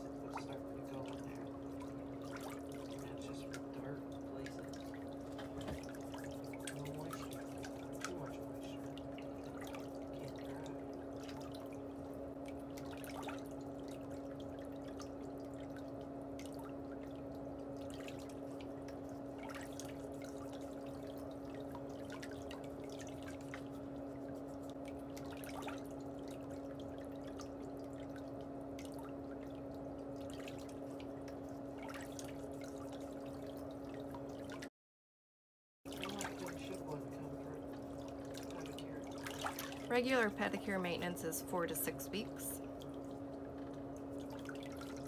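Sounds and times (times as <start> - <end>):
steady low hum: 0.0 - 34.7, 35.9 - 45.0.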